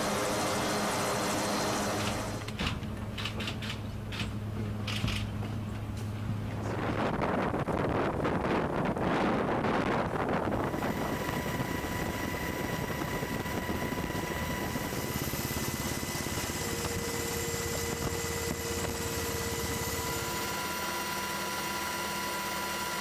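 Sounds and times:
helicopter engine and rotor drone: 0:00.0 - 0:23.0
wind buffeting microphone: 0:05.0 - 0:20.5
whining tones: 0:09.3 - 0:23.0.

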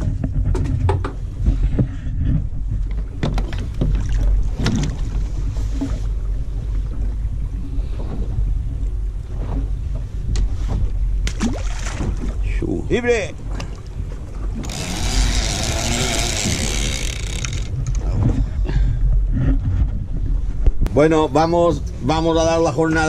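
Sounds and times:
sea: 0:00.0 - 0:23.0
wind: 0:00.0 - 0:23.0
fishing gear knocking: 0:14.5 - 0:18.4.

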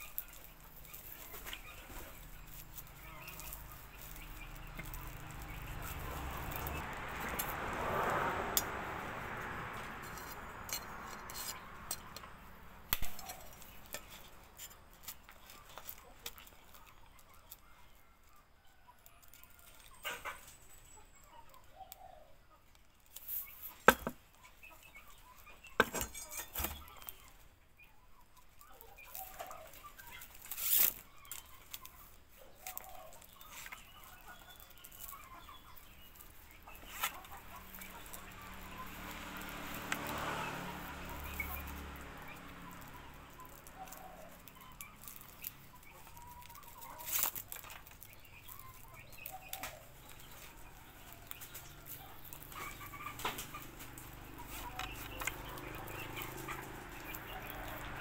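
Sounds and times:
blade scraping and chopping wood: 0:09.5 - 0:17.0, 0:23.1 - 0:24.3, 0:25.6 - 0:27.3, 0:29.0 - 0:32.0, 0:32.6 - 0:58.0.

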